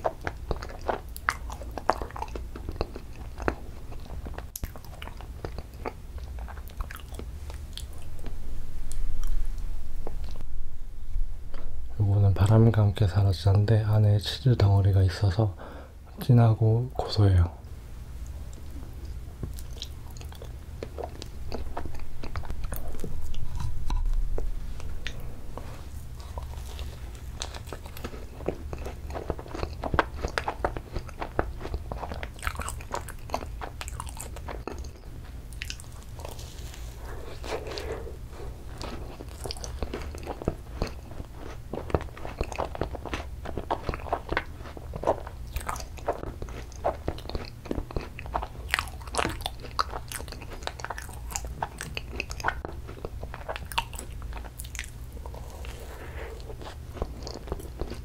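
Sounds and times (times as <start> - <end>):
wet chewing mouth sounds: 0.0 - 10.4, 18.2 - 58.0
steady low hum: 0.0 - 58.0
macaron crunching: 18.4 - 58.0.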